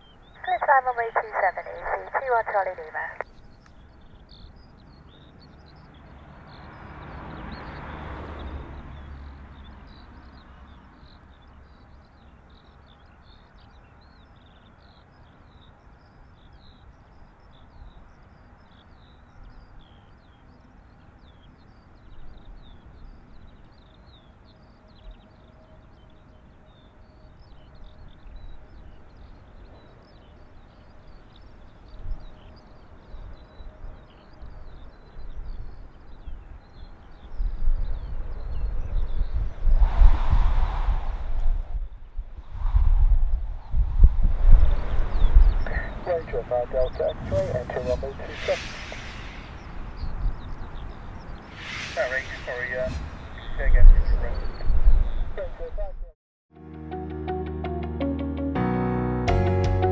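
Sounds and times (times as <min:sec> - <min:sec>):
faint airliner engine hum: 0:00.0 - 0:06.2, 0:45.5 - 0:50.4, 0:51.5 - 0:54.7
small birds chirping: 0:00.0 - 0:40.0, 0:43.6 - 0:56.0
wind rumbling on microphone: 0:30.8 - 0:56.1.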